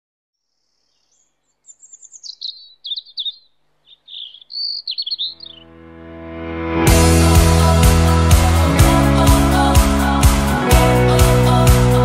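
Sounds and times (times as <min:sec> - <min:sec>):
songbird chirping: 0:00.4 - 0:05.8
music: 0:05.4 - 0:12.0.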